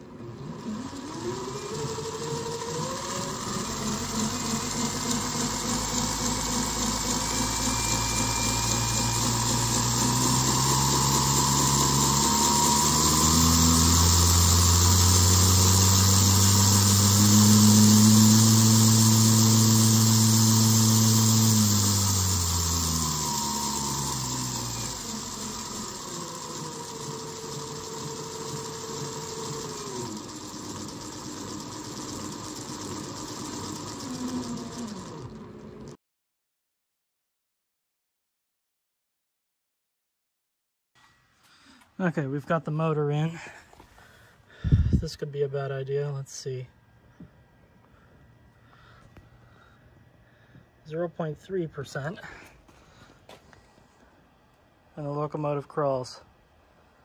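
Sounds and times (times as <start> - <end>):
electric motor and gearbox whine: 0.0 - 36.0.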